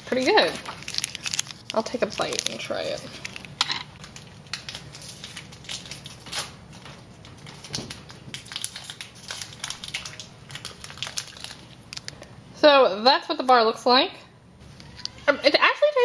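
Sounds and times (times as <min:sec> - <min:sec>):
foil wrapper crinkling: 0:00.0 - 0:12.3
chewing: 0:08.4 - 0:12.2.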